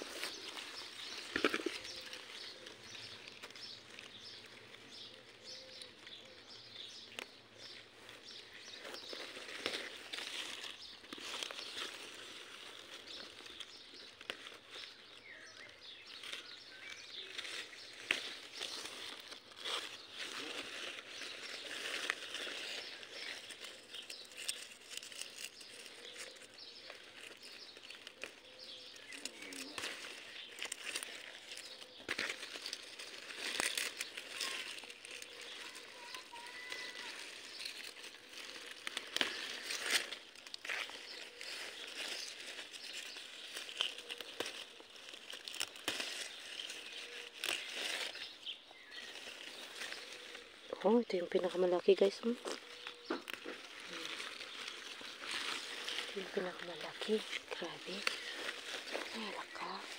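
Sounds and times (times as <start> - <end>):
faint bird chirps: 0.0 - 7.8, 19.7 - 39.9, 40.7 - 59.9
leaves rustling and crackling: 0.0 - 59.9.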